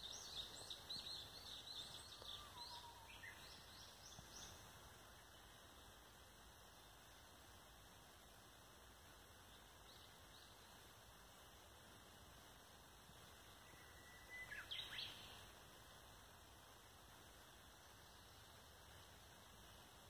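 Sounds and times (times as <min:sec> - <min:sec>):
songbird chirping and singing: 0:00.0 - 0:04.7, 0:13.4 - 0:15.5
faint outdoor hiss: 0:00.0 - 0:20.0.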